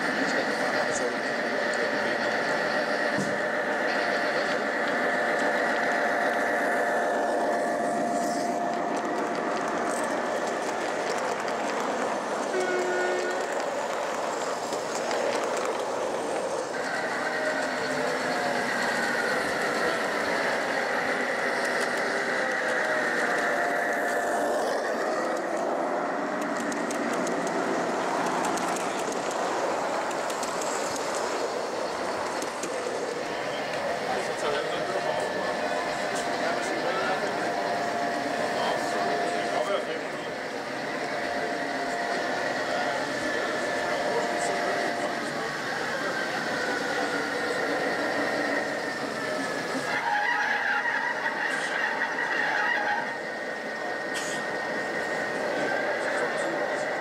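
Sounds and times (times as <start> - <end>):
high whine: 0.0 - 11.3, 11.9 - 57.0
model trains rolling rumble: 0.0 - 57.0
brief horn: 12.5 - 13.5.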